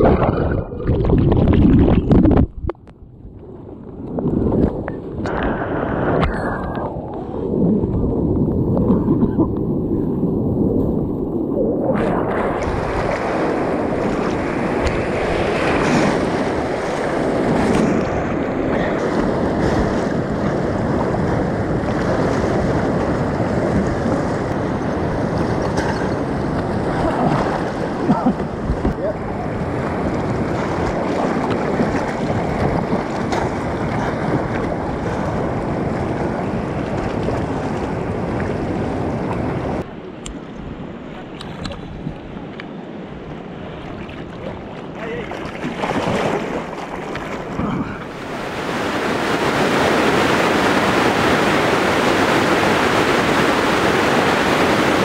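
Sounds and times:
wind buffeting microphone: 0.0s - 55.0s
rushing white water: 11.5s - 40.2s, 43.2s - 55.0s.

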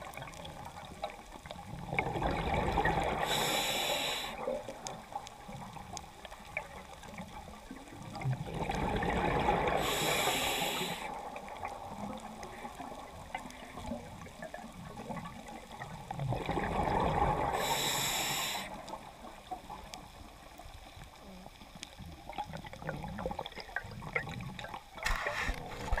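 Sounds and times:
diver breathing through regulator: 3.2s - 4.5s, 9.7s - 11.2s, 17.4s - 19.0s.

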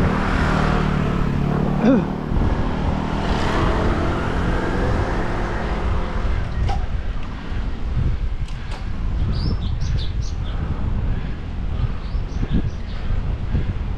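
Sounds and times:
motor vehicle passing: 0.0s - 9.2s
road noise: 0.0s - 13.9s
wind rumbling on microphone: 0.0s - 13.9s.

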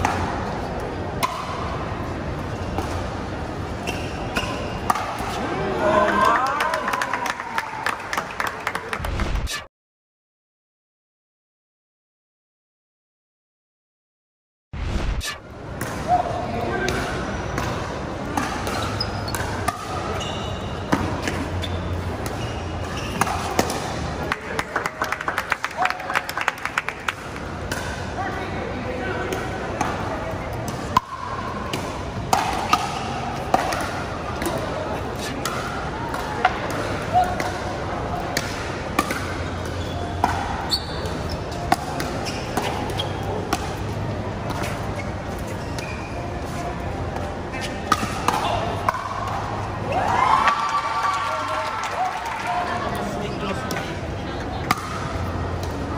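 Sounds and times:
background murmur: 15.4s - 55.9s.

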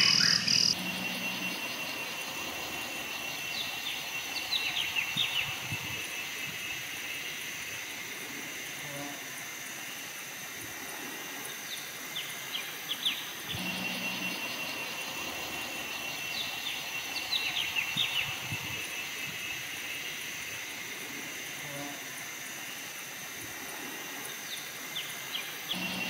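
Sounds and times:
birds chirping: 0.0s - 7.4s, 12.2s - 20.0s, 25.0s - 26.0s
high insect-like hum: 0.0s - 26.0s.

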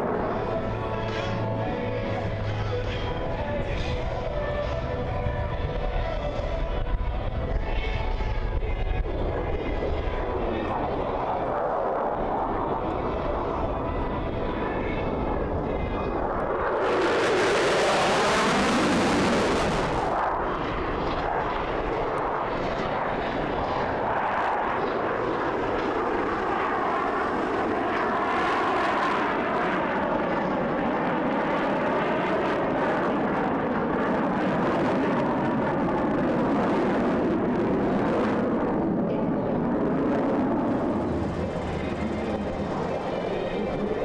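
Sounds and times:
jet engine flying past: 0.0s - 44.0s.

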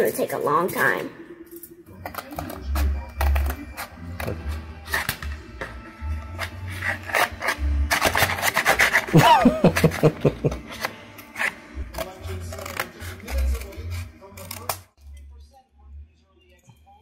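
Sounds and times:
scissors cutting paper plate: 6.3s - 15.0s.

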